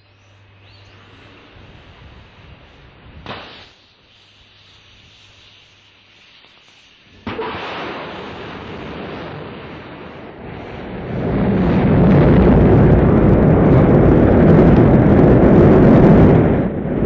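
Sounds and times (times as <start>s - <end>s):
rocket engines deep rumble: 0.0s - 3.8s, 7.0s - 17.0s
rocket hiss: 0.7s - 12.4s.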